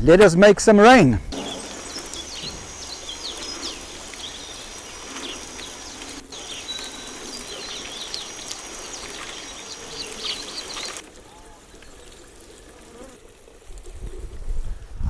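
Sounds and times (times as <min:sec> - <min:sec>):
birds chirping: 0:00.9 - 0:12.3
hose spray hissing: 0:01.3 - 0:11.0.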